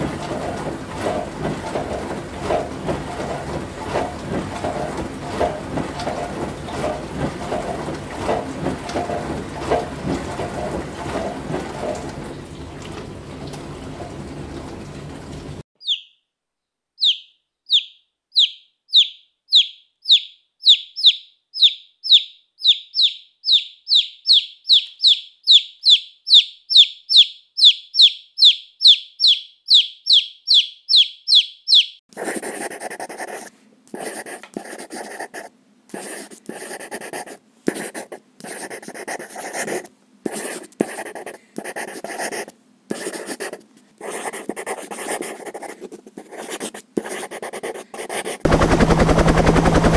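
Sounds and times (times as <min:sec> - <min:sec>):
baby chicks peeping: 0:15.8 - 0:16.2, 0:17.0 - 0:32.0
pencil scribbling on paper: 0:32.1 - 0:48.5.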